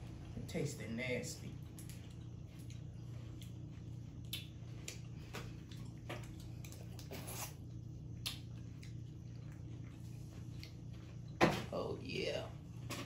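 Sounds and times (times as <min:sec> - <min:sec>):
steady low hum: 0:00.0 - 0:13.0
wet squishing of food: 0:01.5 - 0:11.4.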